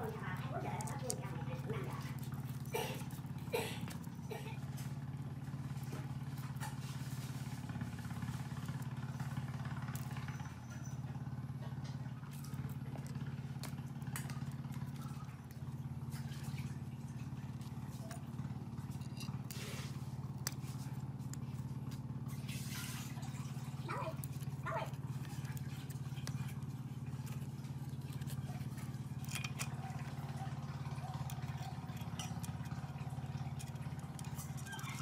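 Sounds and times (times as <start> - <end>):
low mechanical hum: 0.0 - 35.0
small metal parts clicking: 18.8 - 19.6, 27.2 - 30.4, 31.0 - 35.0.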